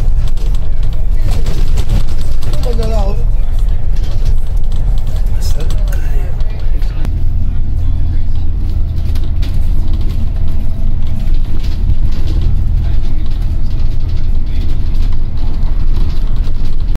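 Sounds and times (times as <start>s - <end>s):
bus body rattling: 0.0s - 17.0s
bus engine and road rumble: 0.0s - 17.0s.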